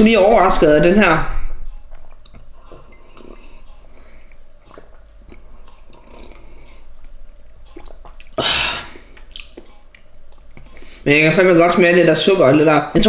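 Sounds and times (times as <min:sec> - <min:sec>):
person sipping and swallowing: 0:01.9 - 0:11.0.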